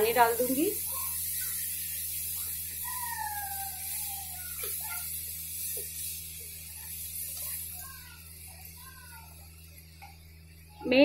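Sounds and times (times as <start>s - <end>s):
steady hiss and low hum: 0.0s - 11.0s.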